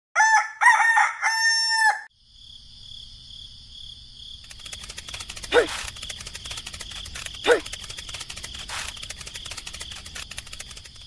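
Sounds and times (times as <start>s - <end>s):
rooster crowing: 0.2s - 2.1s
rapid clicking: 4.4s - 11.0s.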